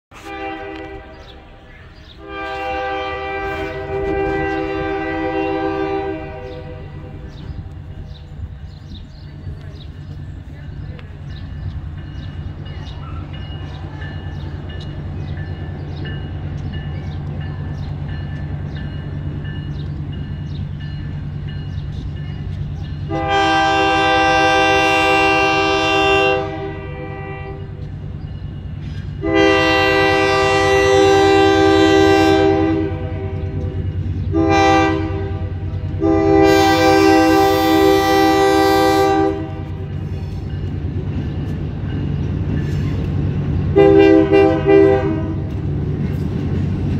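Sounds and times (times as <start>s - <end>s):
locomotive horn: 0.1s - 7.5s, 23.1s - 27.9s, 29.2s - 40.2s, 43.7s - 45.7s.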